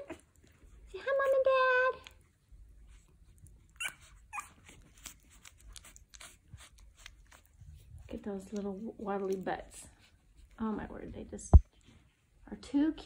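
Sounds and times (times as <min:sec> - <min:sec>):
puppies squeaking: 0:03.5 - 0:07.6.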